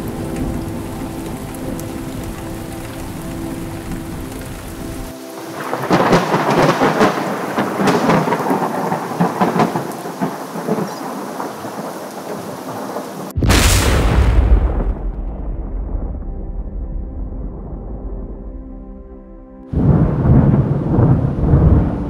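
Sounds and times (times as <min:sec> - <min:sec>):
heavy rain hissing: 0:00.0 - 0:15.3, 0:19.7 - 0:22.0
crackling thunder: 0:00.0 - 0:22.0
loud deep thunderclap: 0:05.6 - 0:12.3, 0:13.2 - 0:19.1, 0:19.7 - 0:22.0.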